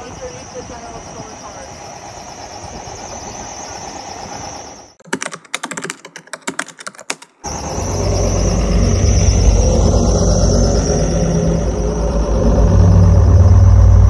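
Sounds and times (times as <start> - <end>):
keyboard typing clicks: 5.0 - 7.5
loud low droning hum: 7.5 - 14.0.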